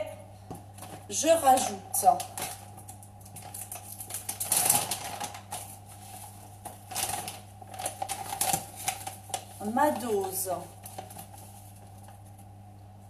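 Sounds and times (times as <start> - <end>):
sachet crinkling: 2.0 - 12.5.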